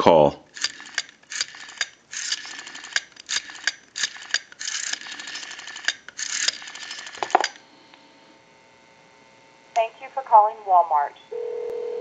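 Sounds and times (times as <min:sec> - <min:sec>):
rotary telephone dial clicking: 0:00.5 - 0:07.6
rotary dial clunk: 0:00.6 - 0:07.6.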